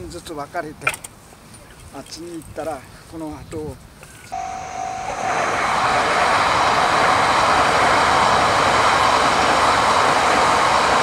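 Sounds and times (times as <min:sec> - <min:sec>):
train passing close by: 0:04.3 - 0:11.0.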